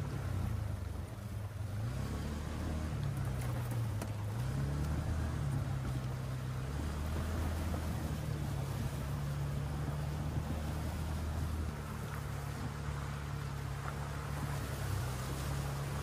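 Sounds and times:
utility vehicle engine running: 0.0s - 16.0s
water and tyre noise: 0.0s - 16.0s.

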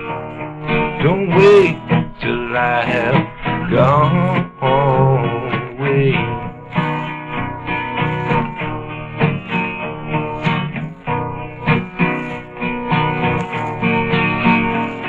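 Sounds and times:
guitar plucked and strummed: 0.0s - 15.0s.

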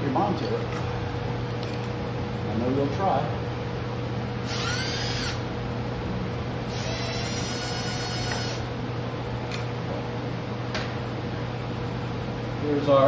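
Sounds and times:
steady low hum: 0.0s - 13.0s
small electric motor whirring: 4.4s - 5.4s, 6.7s - 8.7s.

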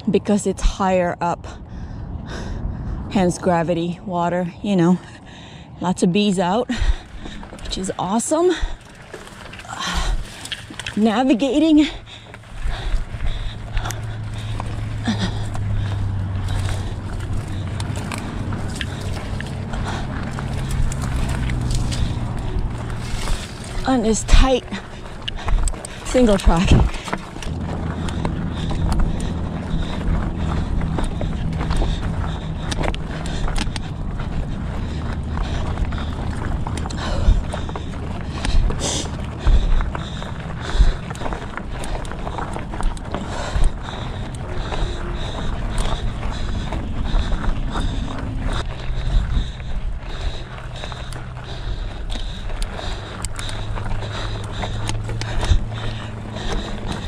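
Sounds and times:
bike tyres rumbling on dirt: 6.0s - 57.0s
bike clicks and rattles: 6.2s - 57.0s.

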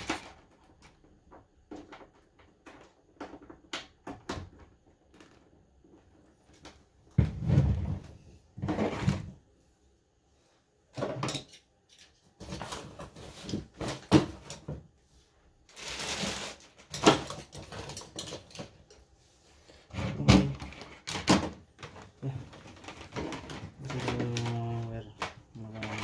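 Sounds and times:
objects knocking and clicking: 0.0s - 7.8s, 16.6s - 19.0s, 20.0s - 26.0s.

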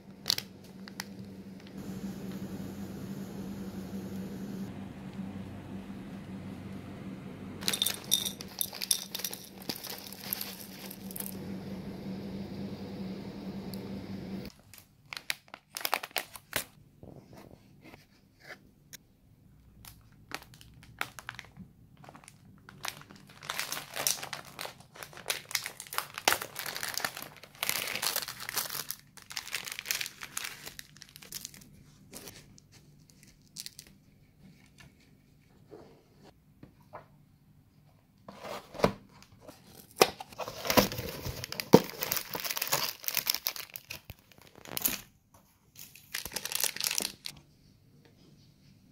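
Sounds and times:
steady low hum: 0.0s - 14.5s
plastic packets crinkling: 0.1s - 1.8s, 7.6s - 11.4s, 14.5s - 16.8s, 19.8s - 32.3s, 33.0s - 34.0s, 40.3s - 45.1s, 45.7s - 47.4s.

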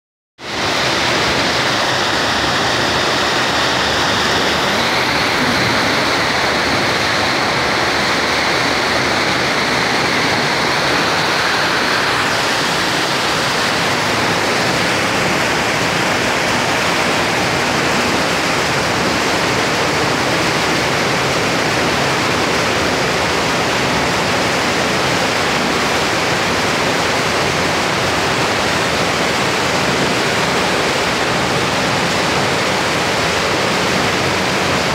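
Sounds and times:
churning water: 0.4s - 34.9s
fountain water pouring into pool: 0.4s - 34.9s.

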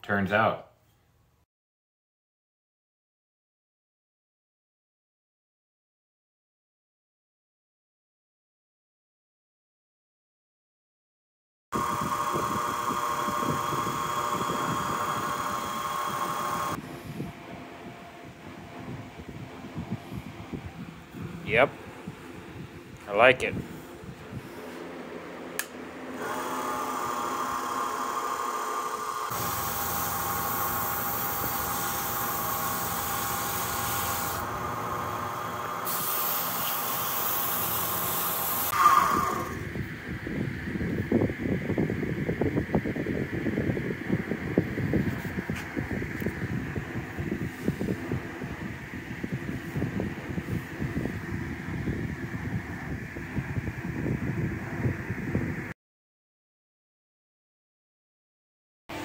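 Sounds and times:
wood lathe whining: 11.8s - 16.8s, 26.2s - 39.7s
mechanical rumble: 11.8s - 35.9s, 38.7s - 55.7s
sandpaper sanding hiss: 29.3s - 34.5s, 35.8s - 38.8s.

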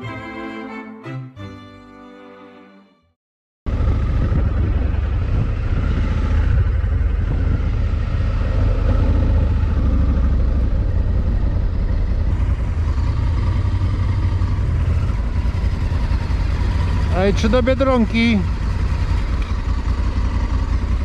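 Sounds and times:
motorcycle riding: 3.7s - 21.0s.

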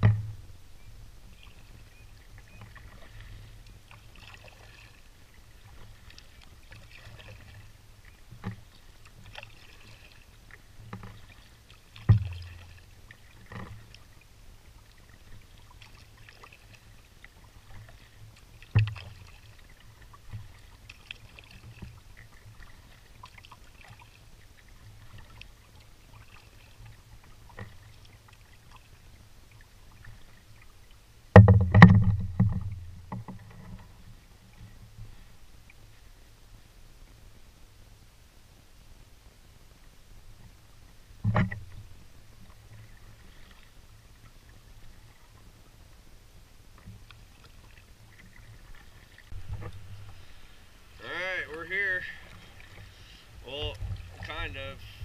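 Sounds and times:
paddle knocking against canoe: 0.0s - 0.6s, 2.4s - 14.1s, 14.8s - 29.0s, 31.3s - 35.2s, 41.2s - 45.5s, 46.8s - 55.0s.

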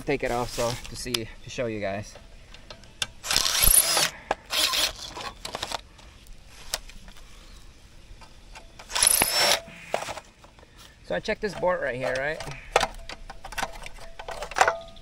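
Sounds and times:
impact driver bursts: 3.2s - 5.2s, 8.8s - 10.1s.

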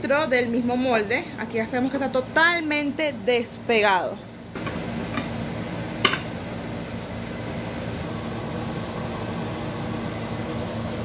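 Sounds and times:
low hum and hiss: 0.0s - 11.0s
dish knocking on stone countertop: 6.0s - 6.3s.

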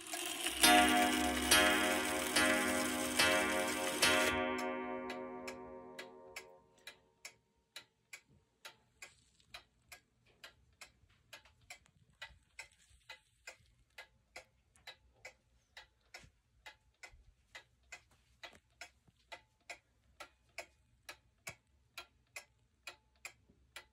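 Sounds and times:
clock ticking: 0.0s - 23.9s
ringing tone: 0.6s - 6.4s.

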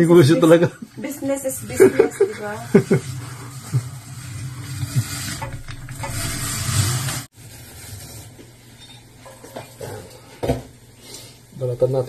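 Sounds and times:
paper towel rubbing and rustling: 1.0s - 8.6s.

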